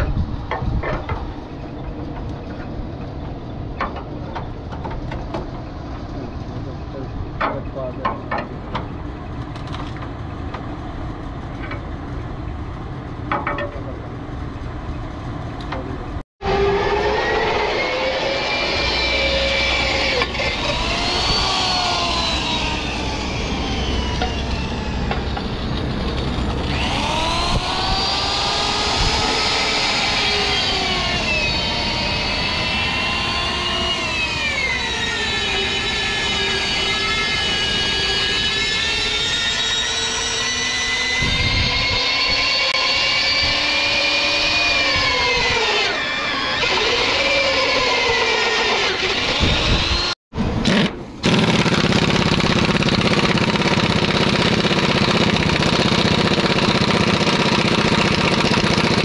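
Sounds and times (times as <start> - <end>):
electric drill boring through steel: 16.4 - 59.0.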